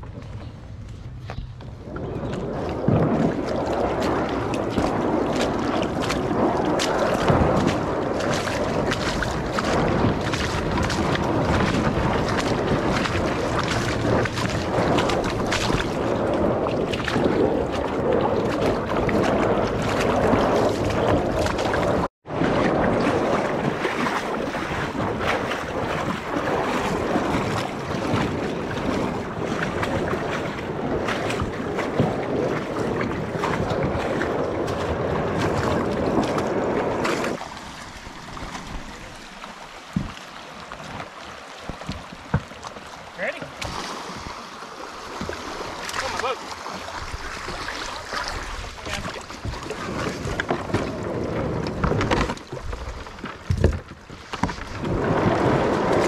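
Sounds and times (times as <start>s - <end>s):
water trickling: 0.0s - 21.8s
wind buffeting microphone: 0.0s - 42.6s, 43.4s - 56.0s
kayak knocks and splashes: 0.0s - 56.0s
rushing river water: 0.0s - 56.0s.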